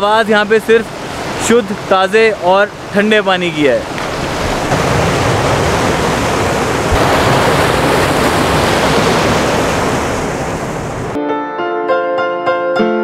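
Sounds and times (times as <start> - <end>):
river rushing over rocks: 0.0 - 11.2
piano music: 11.2 - 13.0.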